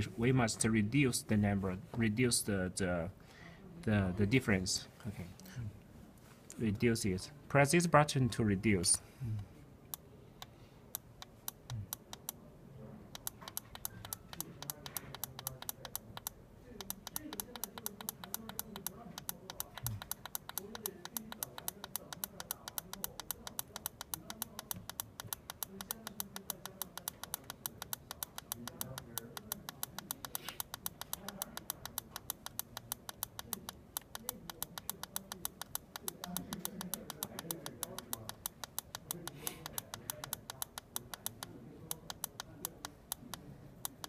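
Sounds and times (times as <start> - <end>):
rapid device clicking: 13.1 - 44.0.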